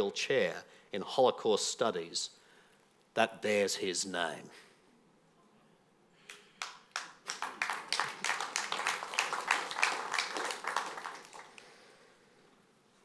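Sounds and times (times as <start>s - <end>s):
audience applauding: 6.6s - 11.8s.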